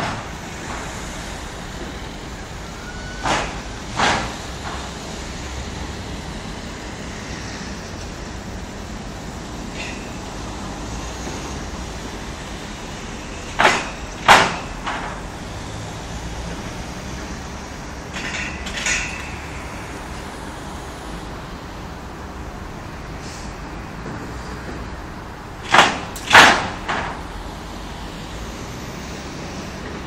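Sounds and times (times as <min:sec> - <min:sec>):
outdoor background noise: 0:00.0 - 0:30.0
sharp knocks: 0:03.2 - 0:04.9, 0:13.6 - 0:15.2, 0:25.6 - 0:27.2.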